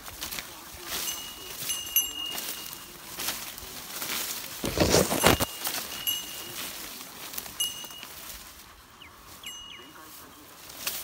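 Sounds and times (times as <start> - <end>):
leaves and plants rustling: 0.0 - 11.0
short high ringing tones: 5.0 - 6.8, 7.6 - 8.4, 9.4 - 10.1.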